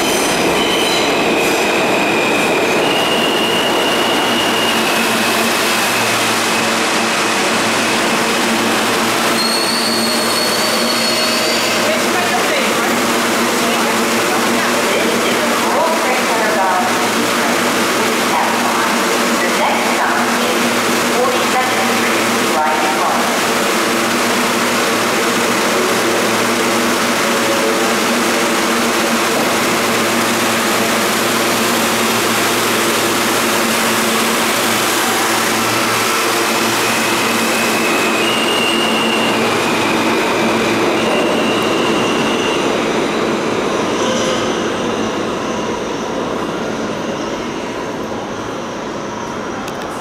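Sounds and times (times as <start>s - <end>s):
train wheels rumbling on rail: 0.0s - 50.0s
wheels squealing: 9.3s - 12.0s, 36.5s - 42.7s
train motors humming: 11.5s - 41.8s.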